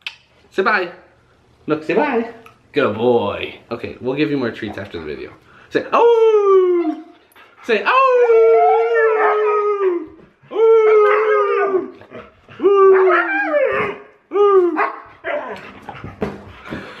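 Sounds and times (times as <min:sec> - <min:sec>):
huskies howling: 0:07.8 - 0:15.6.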